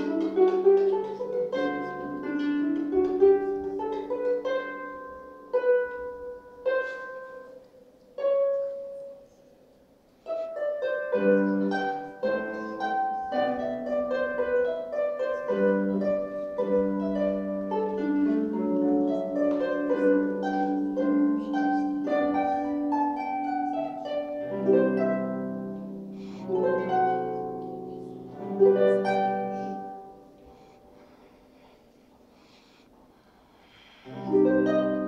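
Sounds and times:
harp plucked notes and chords: 0:10.3 - 0:30.4.

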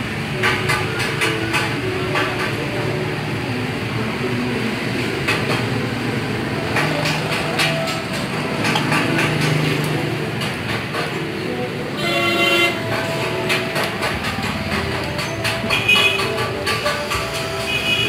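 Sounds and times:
rumble of passing vehicles: 0:00.0 - 0:18.0
vehicle horn: 0:12.0 - 0:12.9, 0:15.8 - 0:16.3, 0:17.4 - 0:18.0.

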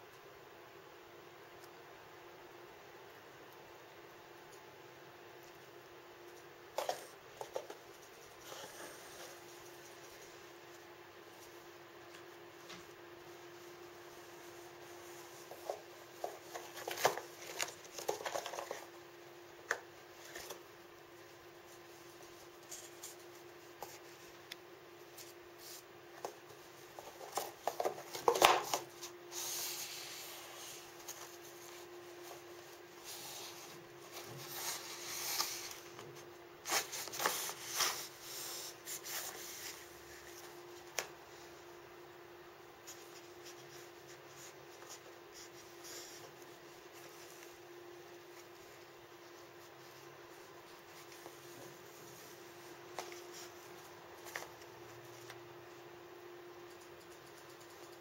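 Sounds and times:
cat rummaging in paper boxes: 0:33.0 - 0:40.4.

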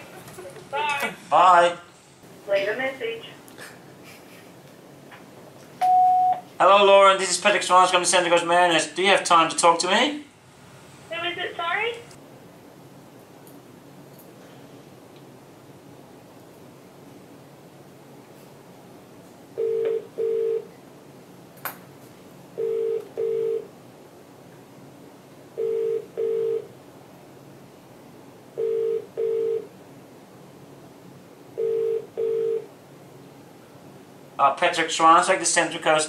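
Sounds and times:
telephone ringback tone: 0:05.8 - 0:06.4, 0:19.6 - 0:20.7, 0:22.6 - 0:23.7, 0:25.6 - 0:26.7, 0:28.6 - 0:29.7, 0:31.6 - 0:32.7.

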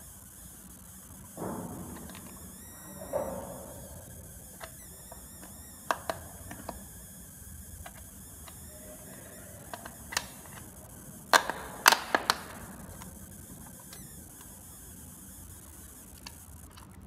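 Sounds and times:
plastic clicks and knocks: 0:01.3 - 0:07.0, 0:09.6 - 0:14.6.

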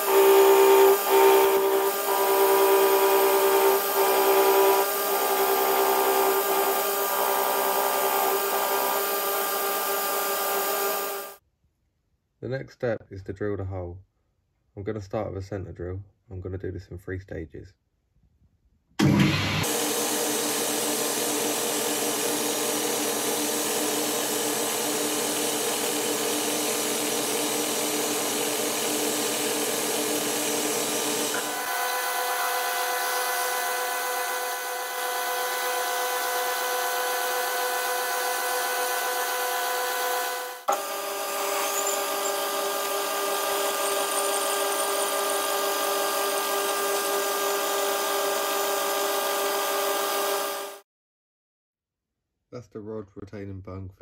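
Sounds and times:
lathe drilling into steel: 0:00.0 - 0:11.4, 0:19.0 - 0:50.8.

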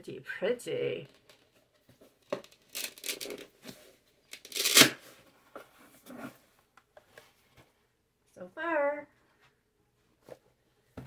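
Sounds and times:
envelope rustling and crinkling: 0:01.3 - 0:04.9
envelope ripping: 0:02.5 - 0:03.4, 0:04.3 - 0:05.0.

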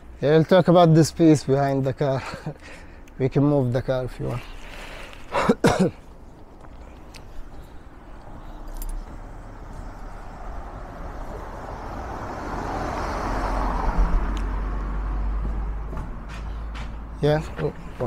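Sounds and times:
car engine rumble: 0:04.1 - 0:18.0.

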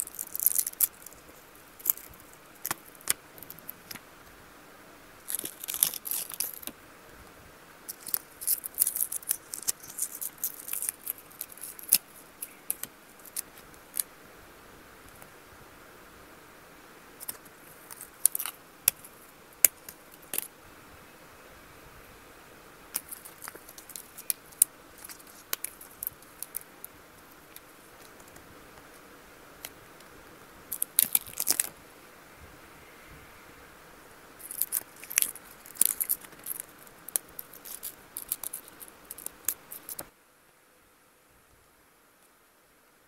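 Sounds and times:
packaging clicks taps and crinkles: 0:00.0 - 0:04.0, 0:07.9 - 0:14.1, 0:17.2 - 0:20.5, 0:23.0 - 0:28.4, 0:30.7 - 0:31.8, 0:34.4 - 0:40.1.

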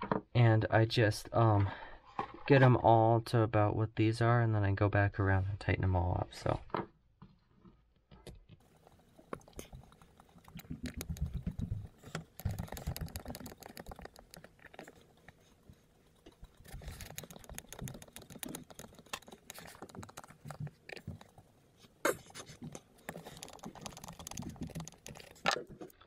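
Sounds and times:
hex driver clicking and rubbing: 0:08.6 - 0:21.5, 0:22.3 - 0:25.7.

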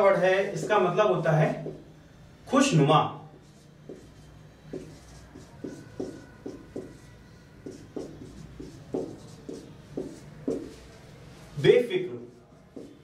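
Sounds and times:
marker pen writing on whiteboard: 0:00.0 - 0:02.2, 0:03.3 - 0:13.0.

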